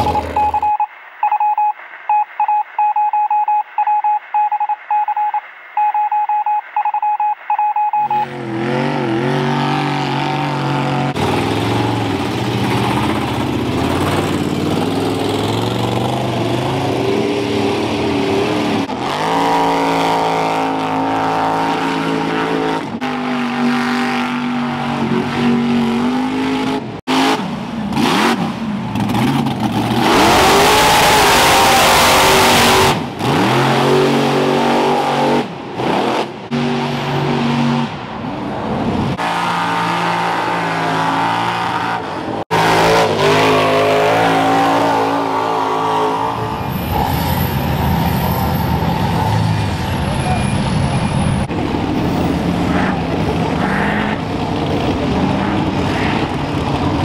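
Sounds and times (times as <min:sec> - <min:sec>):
truck engines revving: 0:00.0 - 0:57.0.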